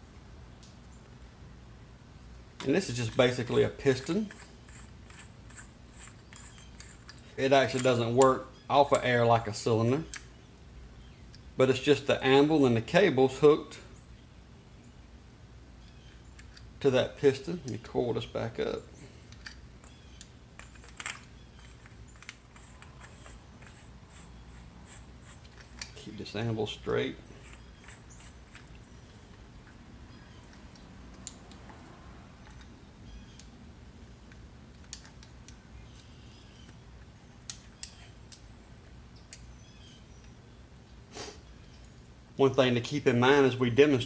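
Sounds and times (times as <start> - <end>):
soft scraping of parts: 2.6 - 8.0, 20.6 - 32.7
small plastic and metal clicks: 15.8 - 16.7, 19.3 - 23.8, 30.5 - 31.8, 32.4 - 32.7, 34.2 - 36.8, 37.4 - 38.5, 39.2 - 39.5.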